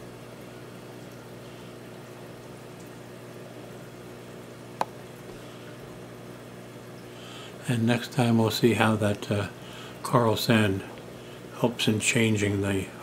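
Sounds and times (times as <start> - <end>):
aquarium pump humming: 0.0 - 13.0.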